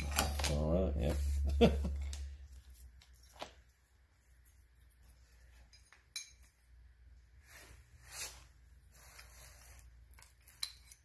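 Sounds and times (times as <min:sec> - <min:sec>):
light metal clinks: 0:05.5 - 0:06.6.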